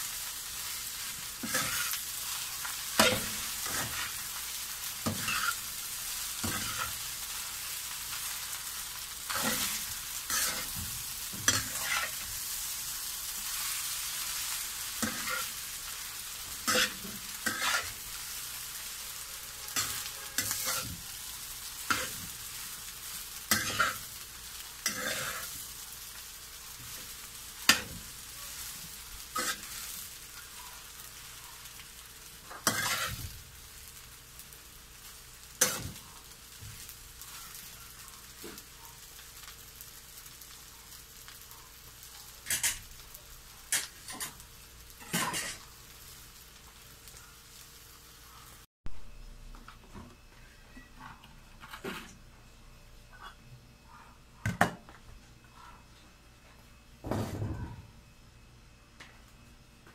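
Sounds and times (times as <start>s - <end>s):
food sizzling: 0.0s - 49.6s
metal spatula scraping a wok: 1.4s - 4.3s, 5.0s - 5.7s, 6.4s - 7.0s, 9.3s - 10.8s, 11.4s - 12.3s, 15.0s - 15.6s, 16.5s - 18.4s, 19.5s - 21.2s, 23.5s - 24.1s, 24.7s - 25.6s, 29.3s - 29.9s, 32.5s - 33.3s, 42.5s - 42.9s, 45.0s - 45.7s.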